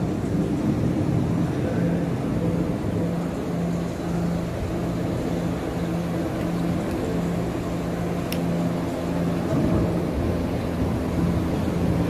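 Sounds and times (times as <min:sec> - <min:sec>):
pulsing low hum: 0:00.0 - 0:12.0
steady low rumble: 0:00.0 - 0:12.0
sharp tick: 0:08.2 - 0:08.5.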